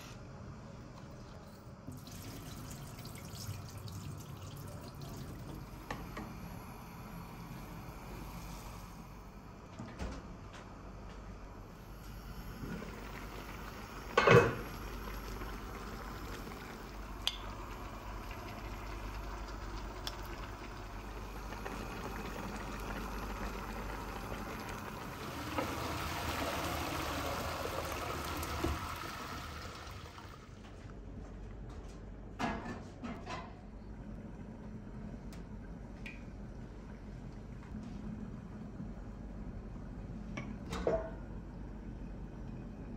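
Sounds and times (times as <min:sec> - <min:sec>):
food bubbling in pot: 0:11.8 - 0:30.6.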